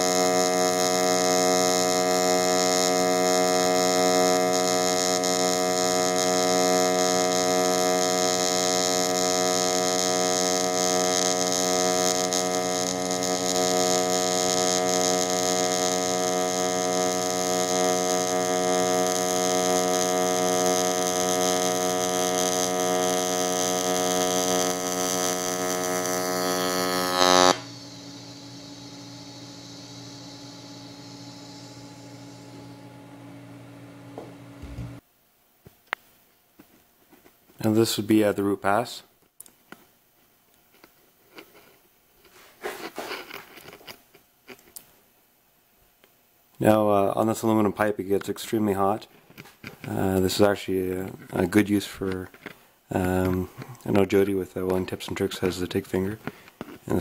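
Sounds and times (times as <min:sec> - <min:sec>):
welding arc buzzing: 0:00.0 - 0:35.0, 0:46.6 - 0:57.0
low background noise: 0:34.7 - 0:57.0.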